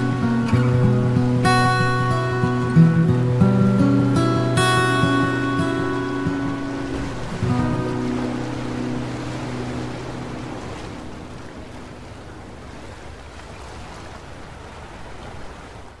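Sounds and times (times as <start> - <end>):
guitar background music: 0.0 - 12.5
ocean surf: 0.0 - 16.0.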